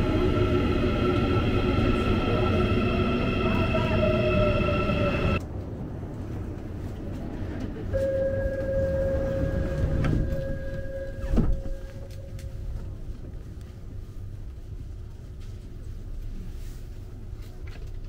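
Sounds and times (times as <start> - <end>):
low rumble of train car: 0.0 - 18.0
door warning buzzer tone: 8.0 - 12.3
sliding doors shutting: 8.1 - 12.1.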